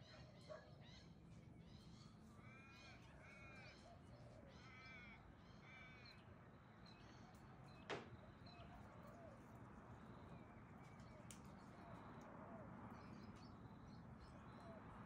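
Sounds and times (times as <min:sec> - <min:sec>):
magpies calling softly: 0:00.0 - 0:06.3.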